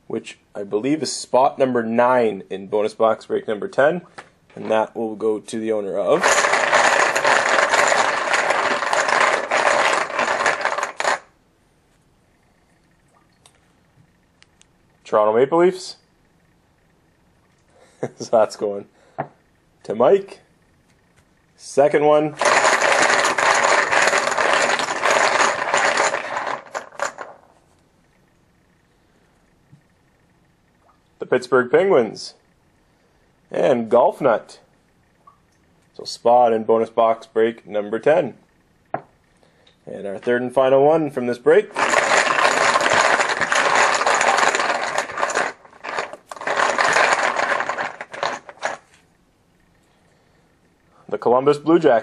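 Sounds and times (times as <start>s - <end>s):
poker chips clattering in a bag: 6.2s - 11.3s, 22.4s - 27.4s, 41.7s - 48.9s.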